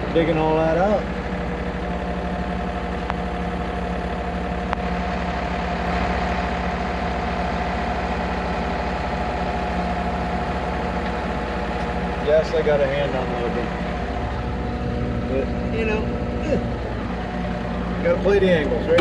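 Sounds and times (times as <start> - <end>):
diesel engine running: 0.0 - 19.0
steady whine: 0.0 - 19.0.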